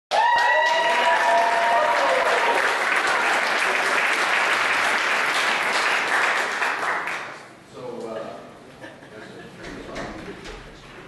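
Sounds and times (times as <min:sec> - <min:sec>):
audience cheering: 0:00.1 - 0:04.9
audience applauding: 0:00.1 - 0:07.5.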